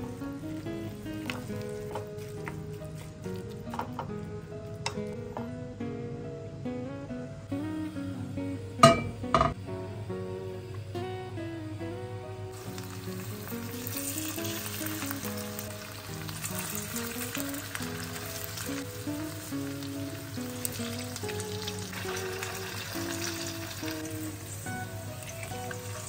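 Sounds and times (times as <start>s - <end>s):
patties sizzling in hot oil: 0.0s - 5.2s, 12.5s - 26.0s
light background music: 0.0s - 26.0s.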